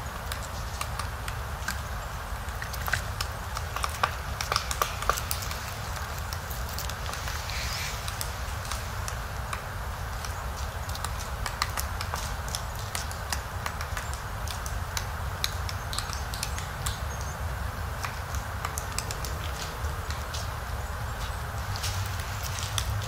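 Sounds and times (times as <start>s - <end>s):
woodpecker tapping on bark: 0.2s - 23.0s.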